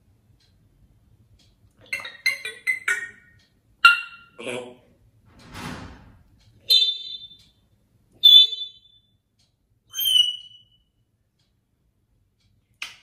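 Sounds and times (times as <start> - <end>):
parrot whistled calls: 1.9 - 4.4, 6.6 - 7.4, 8.2 - 9.0, 9.9 - 10.8.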